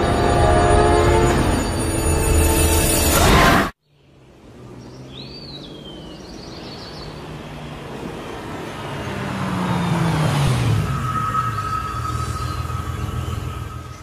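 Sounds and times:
loud scary music: 0:00.0 - 0:03.7, 0:10.7 - 0:14.0
vehicle rumble: 0:04.0 - 0:14.0
bird chirping: 0:04.8 - 0:07.6.

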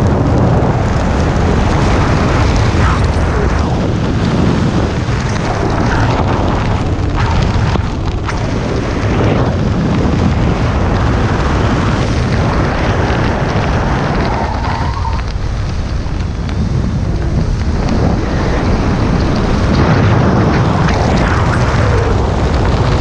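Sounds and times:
wind buffeting microphone: 0:00.0 - 0:23.0.

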